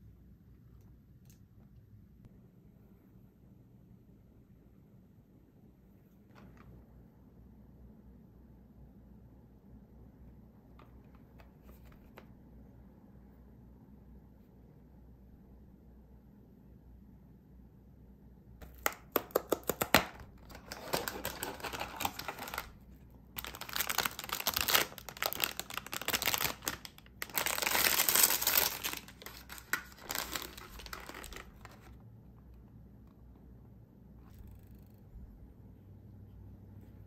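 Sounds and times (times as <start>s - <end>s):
wrapper crinkling and tearing: 18.6s - 22.8s, 23.4s - 32.0s.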